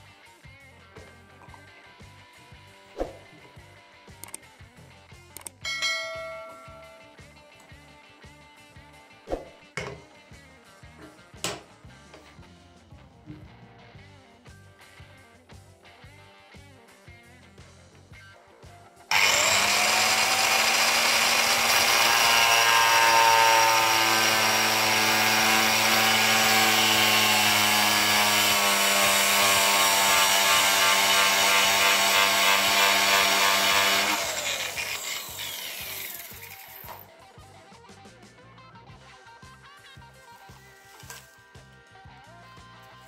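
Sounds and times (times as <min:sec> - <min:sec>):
angle grinder cutting plastic pipe: 0:19.1 - 0:37.1.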